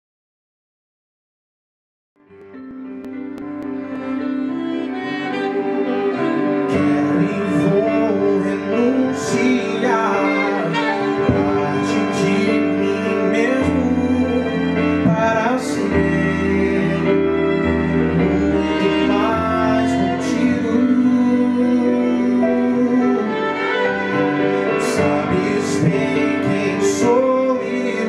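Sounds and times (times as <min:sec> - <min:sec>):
keyboard: 0:02.2 - 0:28.0
saxophone: 0:02.4 - 0:28.0
violin: 0:02.4 - 0:28.0
man singing into a microphone: 0:06.6 - 0:28.0.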